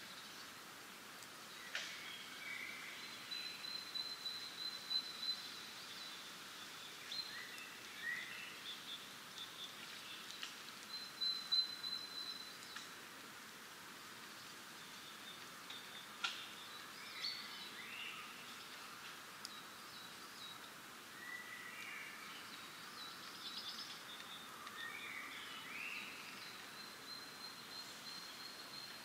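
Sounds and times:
songbirds trilling and chirping: 0.0s - 29.0s
wind hissing in leaves: 0.0s - 29.0s.

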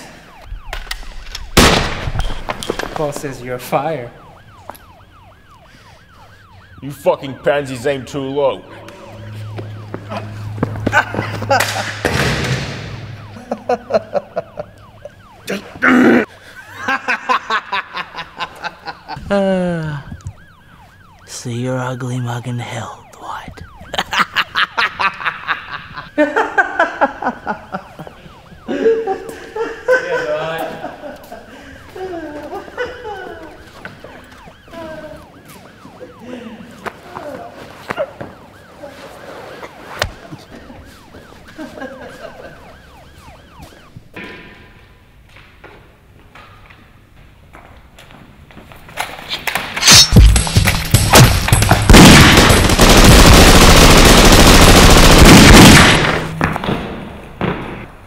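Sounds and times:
faint siren wailing: 0.0s - 45.8s
man laughing: 10.1s - 12.0s, 13.4s - 20.2s, 23.8s - 33.7s, 36.0s - 36.8s, 41.6s - 42.6s
sharp bang: 11.6s - 13.4s
man groaning: 15.5s - 16.3s, 19.2s - 20.1s.

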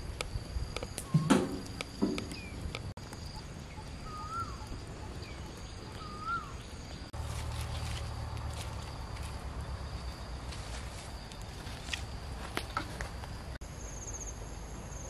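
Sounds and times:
high insect drone: 0.0s - 15.0s
bird calling: 1.0s - 7.8s.

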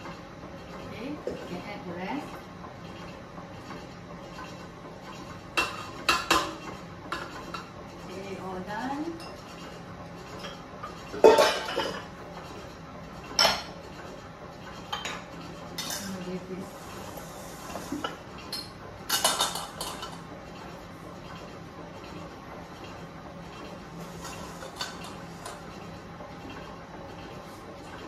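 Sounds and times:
metal bowls clanking on stone: 11.2s - 12.1s, 18.0s - 20.2s.

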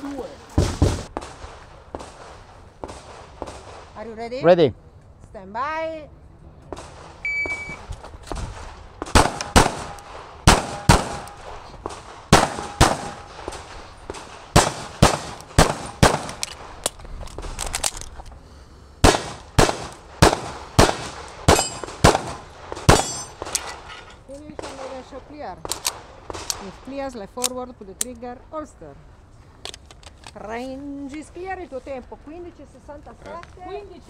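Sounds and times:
pistol shots: 9.0s - 16.4s, 19.0s - 23.5s.

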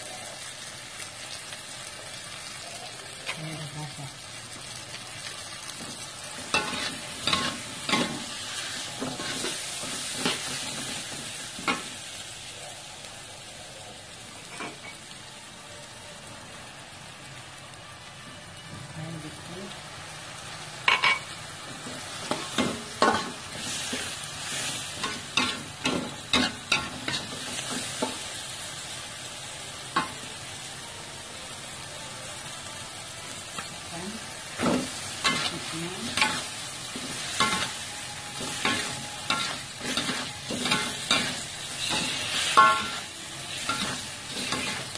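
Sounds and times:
food sizzling in hot oil: 0.0s - 44.9s
metal spatula scraping wok: 6.4s - 11.1s, 34.6s - 44.9s.

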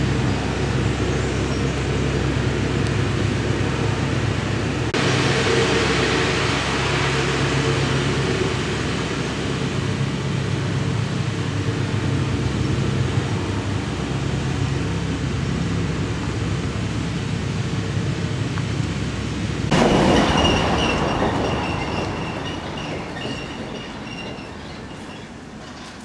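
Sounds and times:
distant traffic hum: 0.0s - 26.0s.

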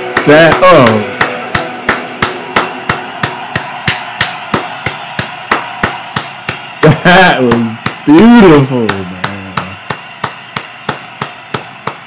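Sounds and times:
person clapping slowly: 0.1s - 8.1s, 8.7s - 12.0s.

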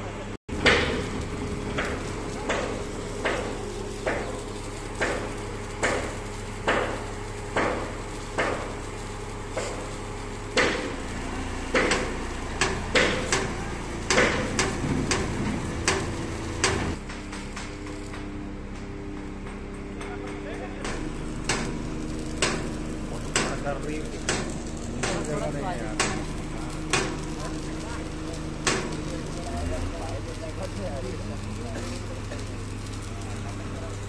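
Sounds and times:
crane engine humming: 0.0s - 34.0s.

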